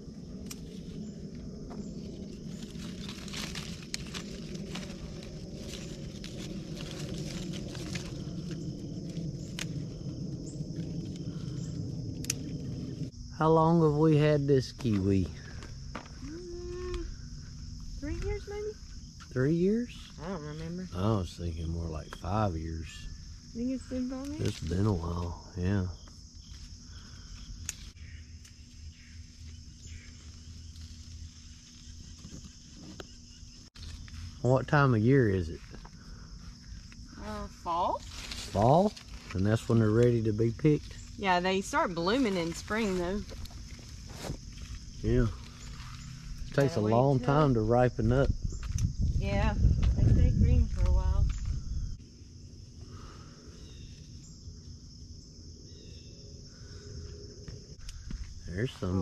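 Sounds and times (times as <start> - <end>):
leaves rustling: 0.0 - 56.8
high-pitched insect chorus: 0.0 - 59.0
low rumble: 0.0 - 59.0.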